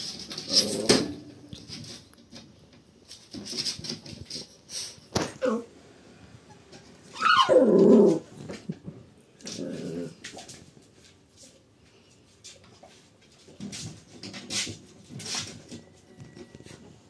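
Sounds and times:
puppy whining cry: 7.1s - 8.3s
puppy growling: 7.2s - 8.4s, 9.4s - 10.2s.

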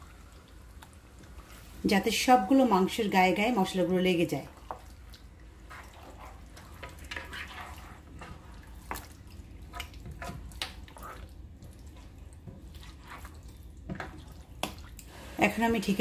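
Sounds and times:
meat squelching in paste: 4.5s - 15.1s.

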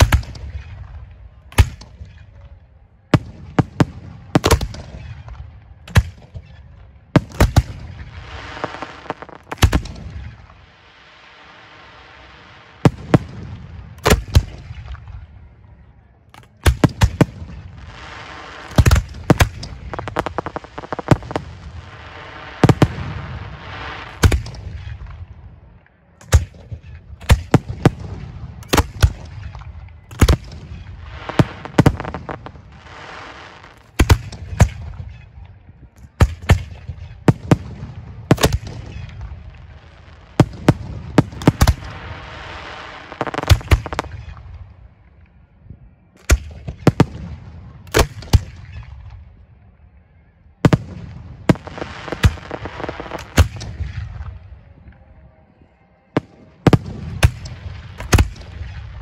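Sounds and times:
hissing crackle of fireworks: 0.0s - 2.4s, 3.0s - 45.2s, 50.6s - 54.6s, 56.2s - 59.0s
firework shells booming: 16.4s - 25.1s, 30.1s - 34.9s, 40.2s - 44.4s.

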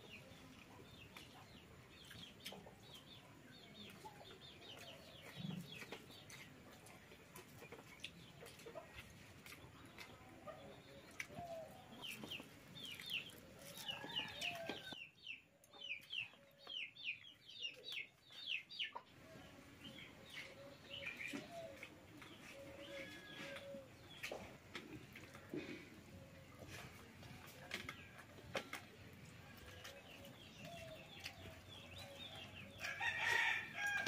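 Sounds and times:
chickens clucking: 0.0s - 34.0s
birds chirping: 9.4s - 34.0s.

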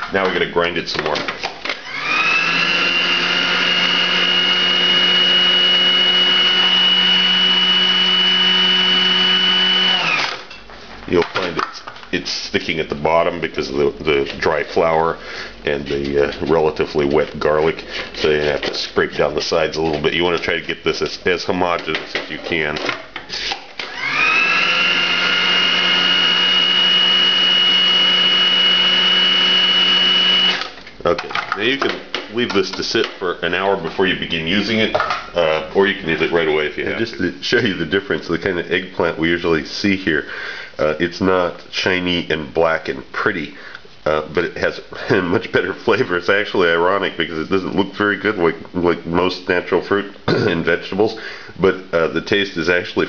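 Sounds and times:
food processor motor whining: 1.7s - 10.4s, 23.8s - 30.8s.

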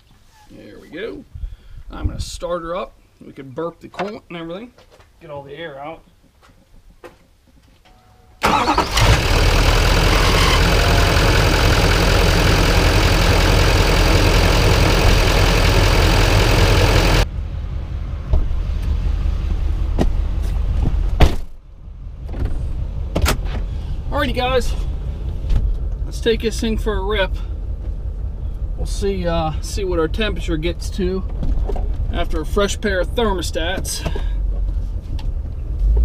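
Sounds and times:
diesel engine starting and idling: 8.4s - 36.0s.

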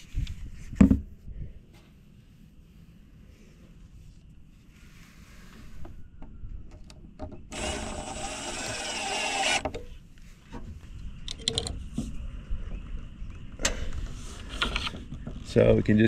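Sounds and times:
cordless drill driving screw: 7.5s - 9.8s.

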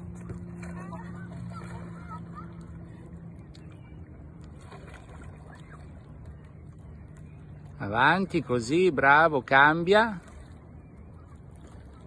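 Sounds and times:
faint voices: 0.0s - 8.0s
distant boat engine droning: 0.0s - 12.0s.

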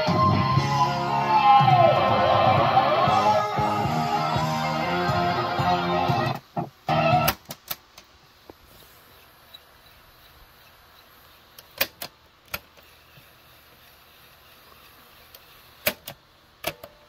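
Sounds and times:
faint steady hiss: 0.0s - 17.0s
cassette deck buttons clicking: 7.2s - 8.1s, 15.8s - 17.0s.

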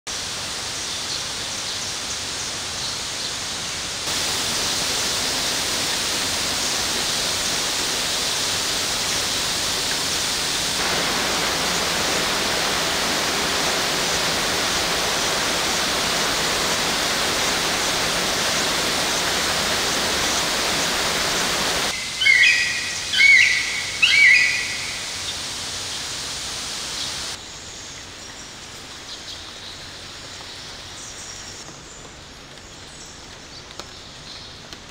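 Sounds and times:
rain hissing on foliage: 0.1s - 34.9s
bird chirping: 21.9s - 25.1s.

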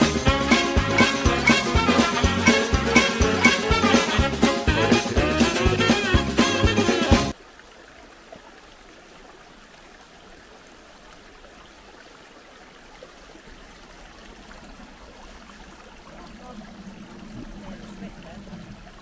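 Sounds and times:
stream babbling over rocks: 7.3s - 19.0s.

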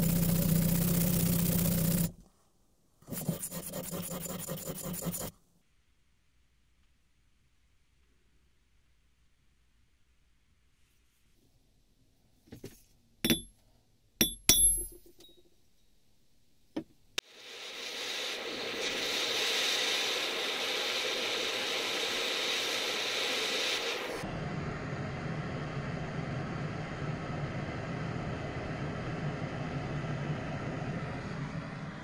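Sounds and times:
hammer striking steel stamp: 13.2s - 13.5s, 14.2s - 15.3s
gas torch hissing: 17.2s - 32.0s.

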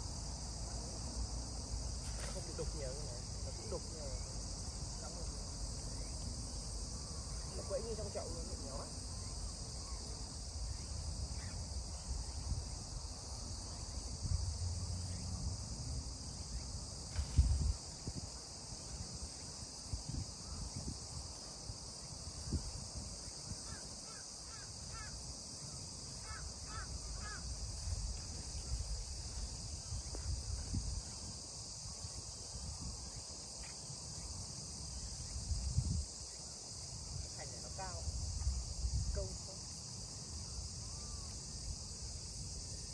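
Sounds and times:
insects chirping: 0.0s - 42.9s
wind rumble on microphone: 10.7s - 23.8s, 27.5s - 33.3s, 35.1s - 36.3s, 37.0s - 39.5s.

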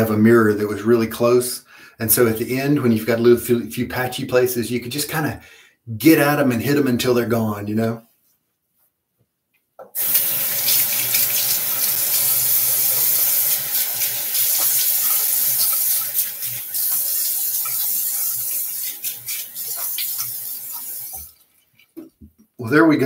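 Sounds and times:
tap water running into basin: 9.9s - 22.3s
water splashes: 10.0s - 22.2s.

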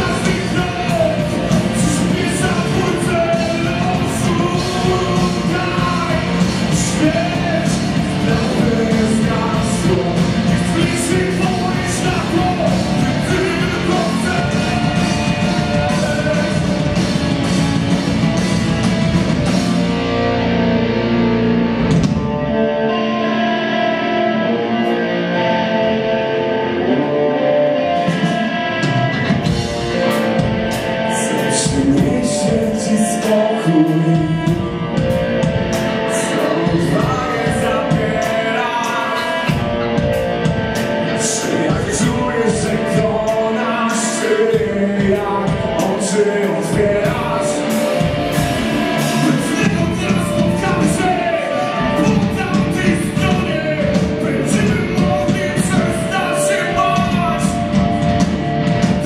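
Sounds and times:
person singing: 0.0s - 17.3s, 22.5s - 59.0s
drum kit: 0.0s - 22.6s, 28.0s - 59.0s
bass guitar: 0.0s - 59.0s
electric guitars: 0.0s - 59.0s.

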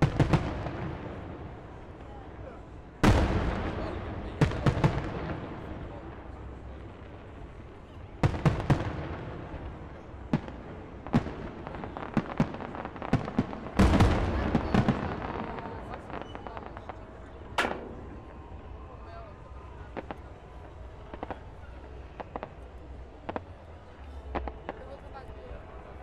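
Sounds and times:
fireworks bursting with echoing bangs: 0.0s - 25.8s
fireworks crackle: 0.0s - 26.0s.

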